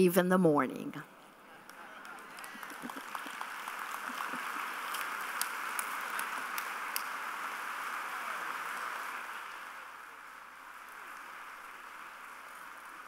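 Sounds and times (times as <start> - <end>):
audience applauding: 1.3 - 13.0.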